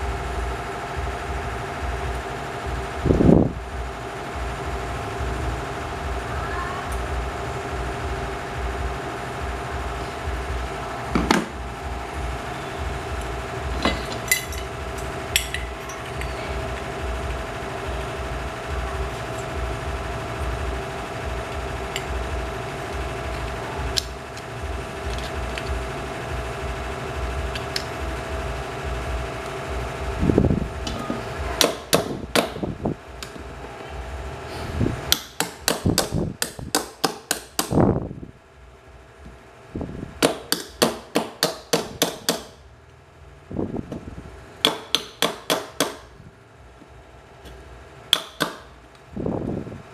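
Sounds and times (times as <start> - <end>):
machine humming and throbbing: 0.0 - 49.9
hammer tapping on metal: 35.1 - 37.8, 40.2 - 42.5, 44.6 - 46.0, 48.1 - 48.6.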